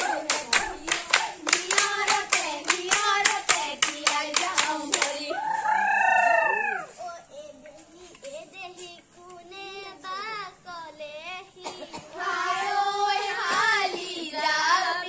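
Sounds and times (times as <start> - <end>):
girls singing folk song: 0.0 - 5.6, 11.4 - 15.0.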